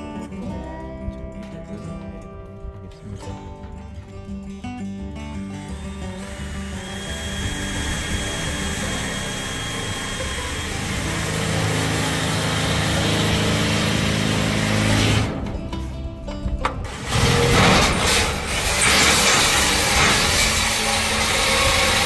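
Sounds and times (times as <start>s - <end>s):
background music: 0.0s - 22.0s
drill boring into sheet metal: 5.4s - 15.3s, 16.9s - 22.0s.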